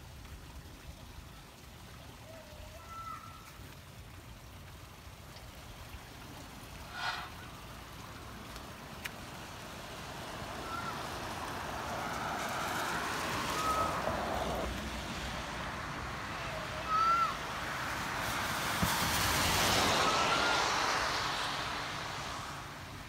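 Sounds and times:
tyre hiss on wet road: 0:05.6 - 0:23.0.

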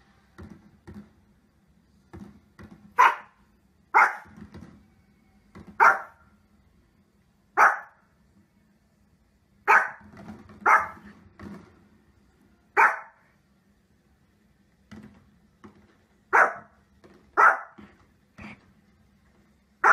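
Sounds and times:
small dog barking: 0:03.0 - 0:04.3, 0:05.8 - 0:06.2, 0:07.6 - 0:08.0, 0:09.6 - 0:11.1, 0:12.8 - 0:13.2, 0:16.3 - 0:16.8, 0:17.4 - 0:17.8.

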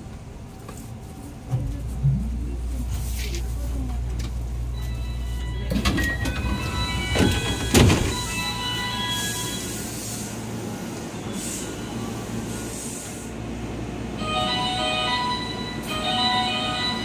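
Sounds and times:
train low hum: 0:00.0 - 0:17.0
train doors sliding open: 0:04.1 - 0:13.3.

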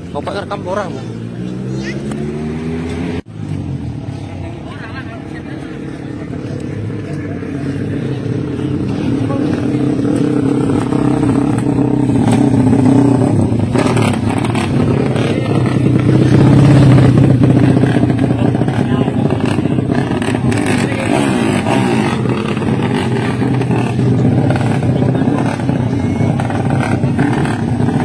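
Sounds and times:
motorcycle engines revving: 0:00.0 - 0:28.0
crowd talking: 0:03.3 - 0:28.0.

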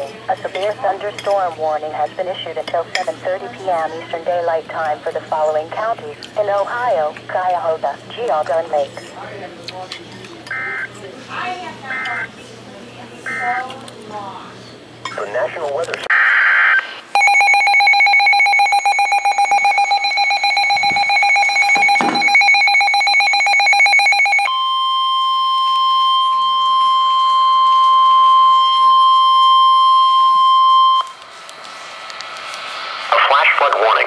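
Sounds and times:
steady high alarm tone: 0:13.3 - 0:13.6, 0:17.1 - 0:31.2
fast-pulsing two-tone beep: 0:17.2 - 0:31.0.

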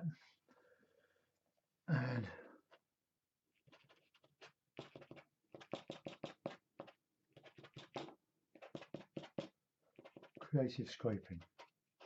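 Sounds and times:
card scraping wet paint on paper: 0:03.6 - 0:12.0.

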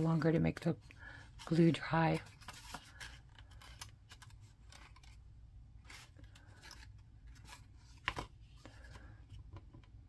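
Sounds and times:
cardstock rustling and scraping: 0:00.0 - 0:09.8.

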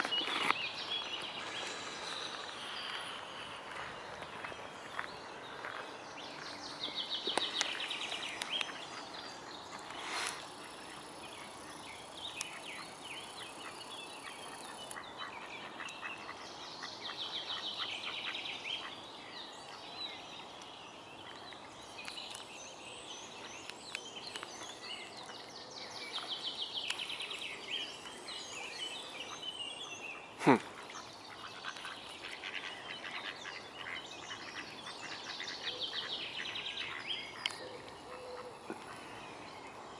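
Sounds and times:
outdoor hiss: 0:09.8 - 0:14.6.

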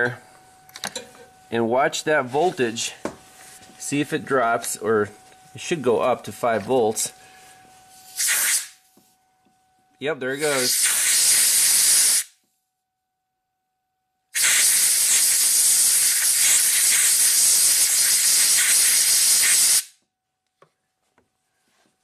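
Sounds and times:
compressed air hissing: 0:08.1 - 0:08.8, 0:10.4 - 0:12.3, 0:14.4 - 0:19.9.

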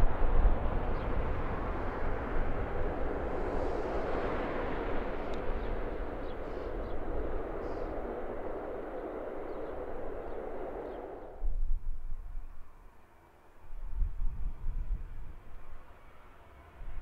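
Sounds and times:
jet engine roar: 0:00.0 - 0:11.5.

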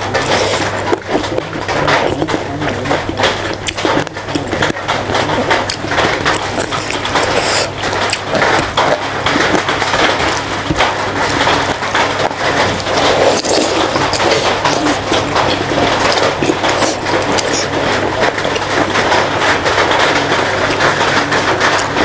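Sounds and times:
wet chewing and smacking: 0:00.0 - 0:22.0
heavy rain: 0:07.4 - 0:22.0.

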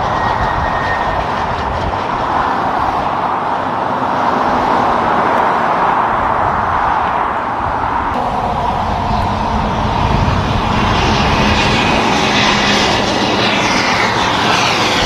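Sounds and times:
passing road traffic: 0:00.0 - 0:15.0
truck driving past: 0:08.2 - 0:15.0.

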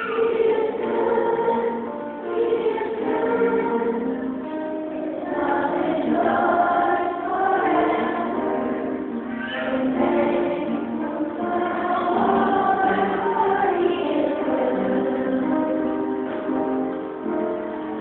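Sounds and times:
congregation singing a hymn: 0:00.0 - 0:18.0.

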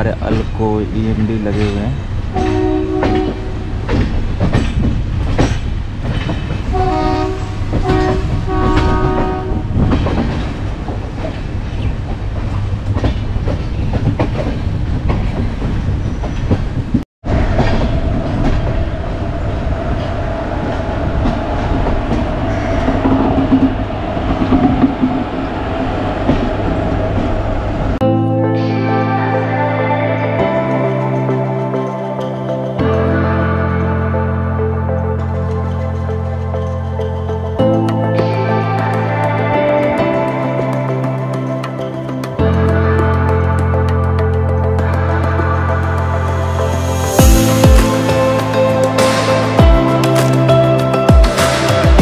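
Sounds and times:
train wheels clattering: 0:00.3 - 0:18.8
locomotive air horn: 0:02.4 - 0:03.6, 0:06.7 - 0:09.7.

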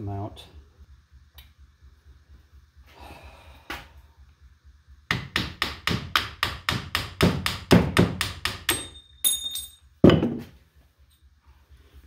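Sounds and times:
metallic clink with ringing tone: 0:08.7 - 0:09.9.

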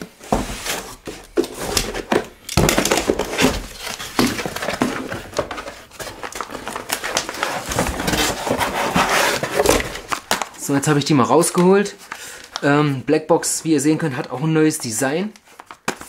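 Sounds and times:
cardboard rustling and scraping: 0:00.0 - 0:12.8.

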